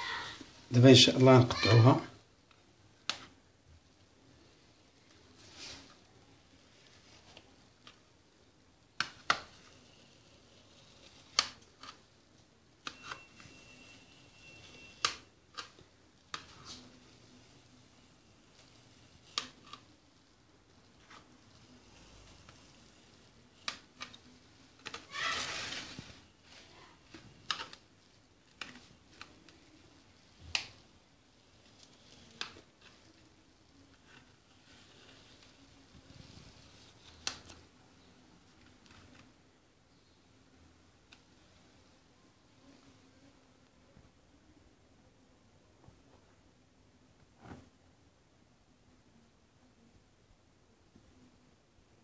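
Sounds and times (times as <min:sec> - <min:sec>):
knife cutting cake: 0:09.0 - 0:12.0.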